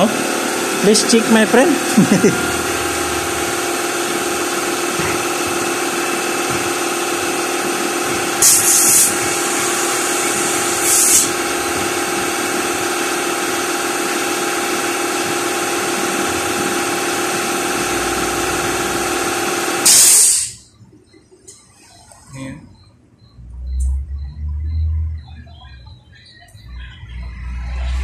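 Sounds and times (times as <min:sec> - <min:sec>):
air compressor running: 0:00.0 - 0:20.7
air hissing through hose: 0:08.4 - 0:11.4, 0:19.8 - 0:20.6.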